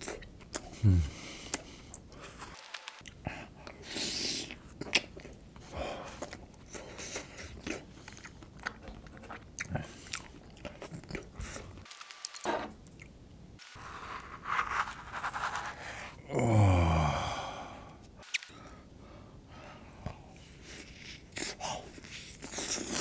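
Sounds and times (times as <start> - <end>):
chewing ice cream with crunches: 3.0 - 11.8, 20.6 - 23.0
wet mouth sounds: 21.1 - 23.0.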